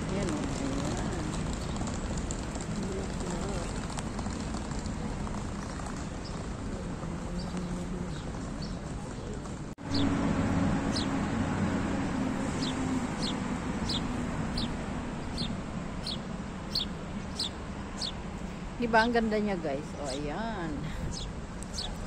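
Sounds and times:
small bird chirping: 12.5s - 18.2s, 21.1s - 22.0s.

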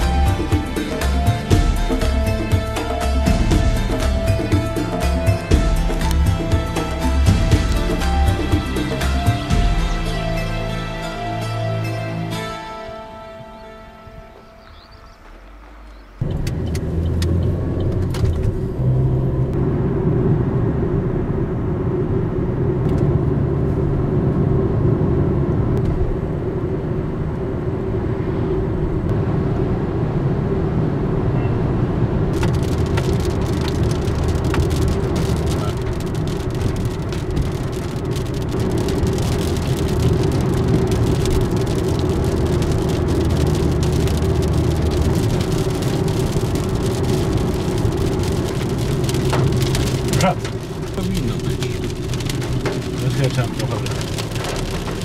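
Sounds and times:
car engine and tyre hum: 0.0s - 55.0s
raindrops tapping on windshield: 32.3s - 55.0s.

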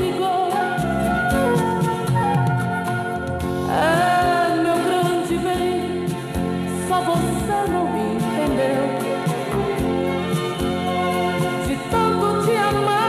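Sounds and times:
person singing: 0.0s - 1.8s, 3.6s - 9.8s, 11.4s - 13.0s
instrumental backing music: 0.0s - 13.0s.

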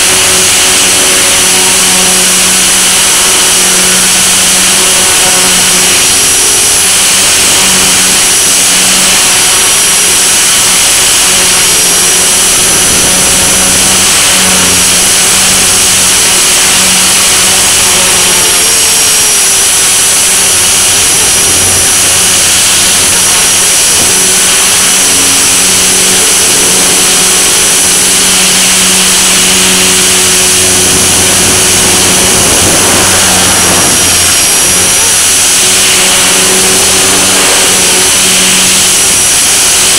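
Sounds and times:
rc helicopter motor whine: 0.0s - 39.9s.

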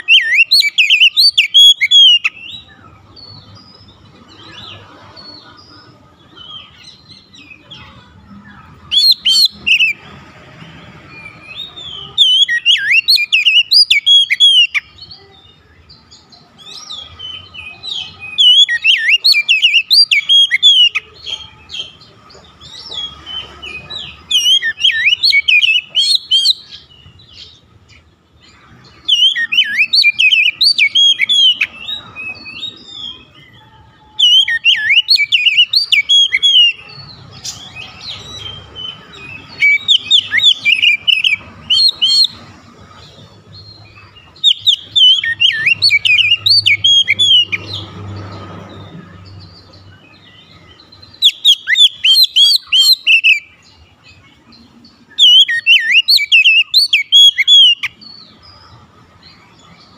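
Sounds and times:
bird singing whistled phrases: 0.0s - 2.7s, 11.2s - 14.9s, 16.7s - 21.0s, 23.7s - 26.8s, 29.1s - 33.3s, 34.0s - 42.4s, 44.4s - 47.6s, 51.1s - 53.6s, 55.1s - 58.0s.

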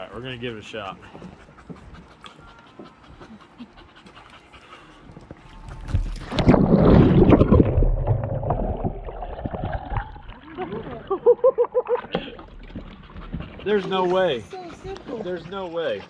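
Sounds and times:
water splashing and churning: 4.0s - 16.0s.

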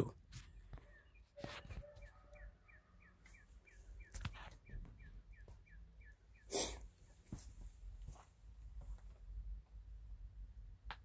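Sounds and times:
sharp breathy burst: 6.4s - 6.9s.

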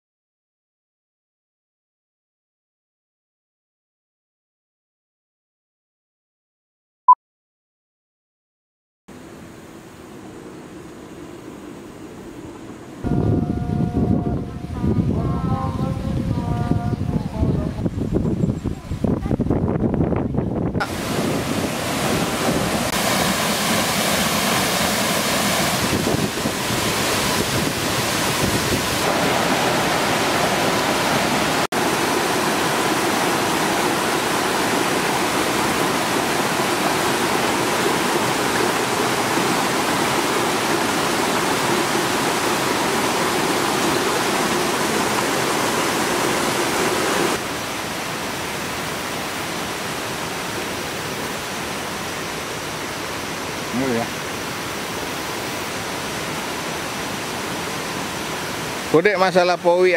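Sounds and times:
rushing water: 19.0s - 59.9s.

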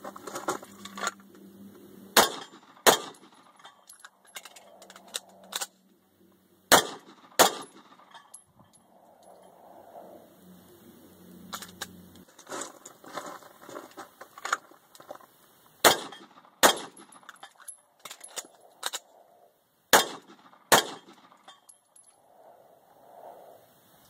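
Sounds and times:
pistol shots: 2.2s - 3.6s, 6.7s - 8.1s, 15.8s - 17.2s, 19.9s - 21.4s
magazine change clicks and clatter: 2.2s - 5.8s, 11.5s - 12.5s, 15.9s - 19.1s.

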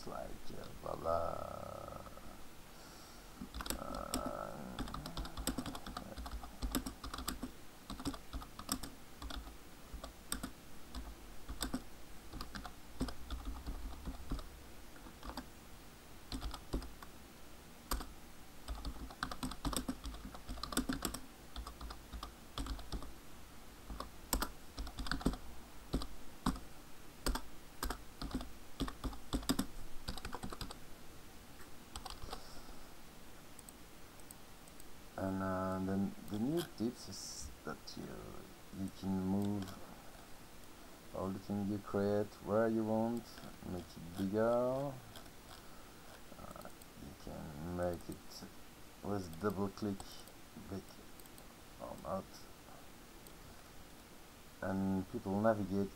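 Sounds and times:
computer keyboard typing: 3.4s - 15.5s, 16.3s - 17.1s, 17.9s - 18.1s, 18.7s - 23.1s, 23.9s - 26.6s, 27.2s - 30.8s, 31.9s - 32.4s.

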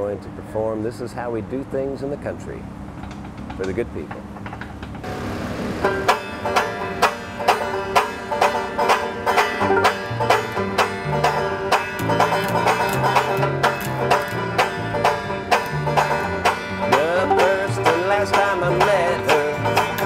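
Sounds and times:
banjos picking: 3.0s - 20.0s
small drum beat: 5.8s - 20.0s
upright bass: 5.8s - 20.0s.

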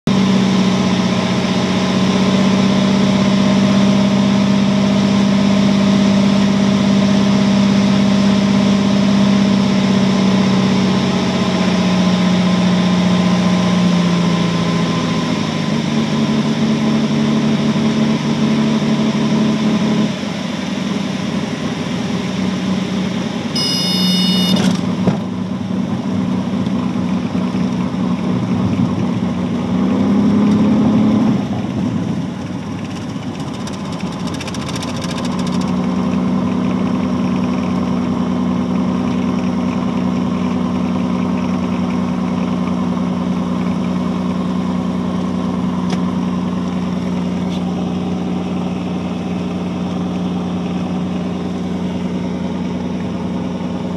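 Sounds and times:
propeller aircraft engine idling: 0.2s - 29.7s, 31.4s - 53.9s
short high-pitched tone: 23.5s - 24.8s.

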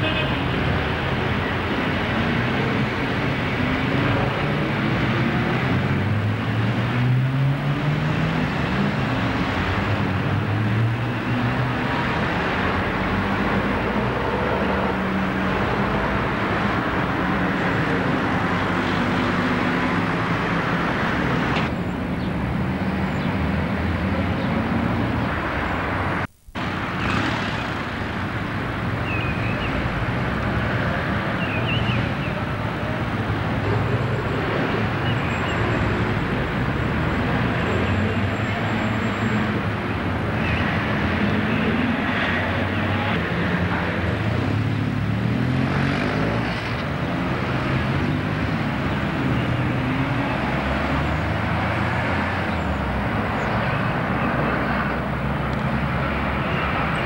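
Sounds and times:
road traffic engine rumble: 0.0s - 57.0s.

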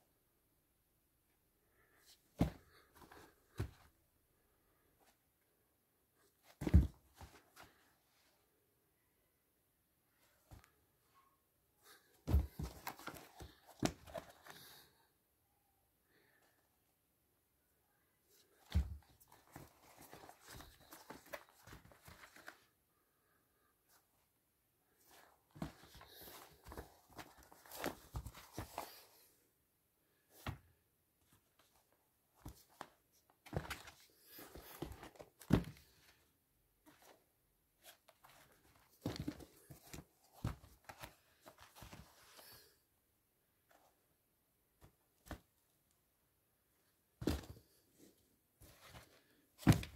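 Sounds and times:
shoes thumping on carpet: 2.4s - 2.8s, 6.6s - 7.4s, 12.2s - 14.2s, 18.6s - 19.1s, 39.0s - 40.7s, 47.2s - 47.7s, 49.6s - 49.9s.

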